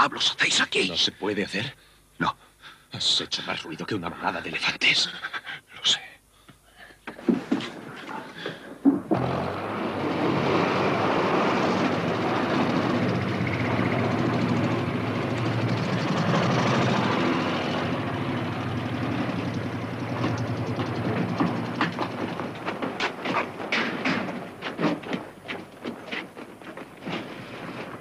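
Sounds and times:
truck engine running: 9.1s - 28.0s.

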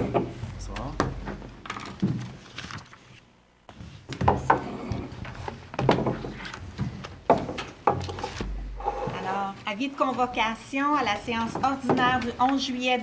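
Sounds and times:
papers and objects handled: 0.7s - 9.2s
chairs shifting: 3.7s - 12.8s
knocks and thuds: 4.1s - 8.7s.

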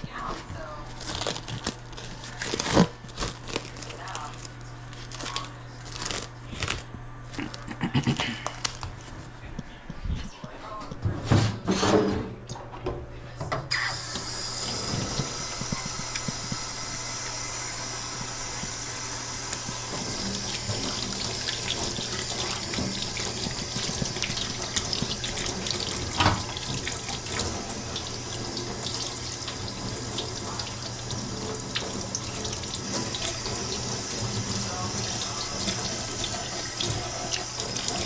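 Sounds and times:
tap running into sink: 19.5s - 38.0s.

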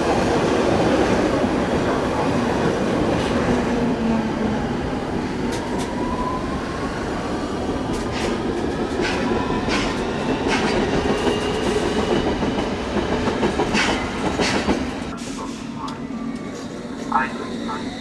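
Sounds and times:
wheels rumbling on rail: 6.8s - 18.0s
wheels clacking on track: 7.9s - 15.1s.

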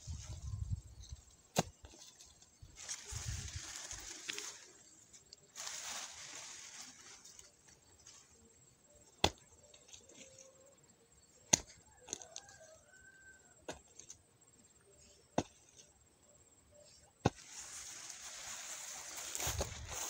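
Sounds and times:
hoe blade striking ground: 1.1s - 2.3s, 9.0s - 10.3s, 11.4s - 12.4s, 13.6s - 14.2s, 15.3s - 15.9s, 17.2s - 17.6s.

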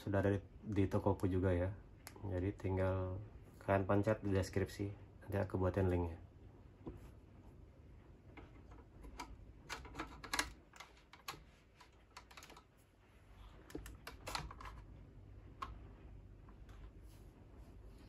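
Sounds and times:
plastic clicks and scrapes: 13.6s - 14.9s.

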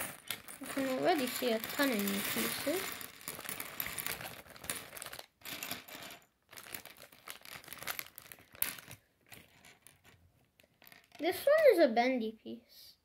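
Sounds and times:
plastic bag crinkling: 0.0s - 5.4s, 6.5s - 9.1s
plastic pieces clicking onto table: 0.0s - 11.6s.

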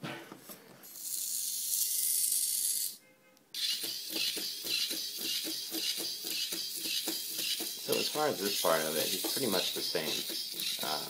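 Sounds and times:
high gear motor whir: 3.6s - 11.0s
rhythmic mechanical clicking: 3.6s - 11.0s.

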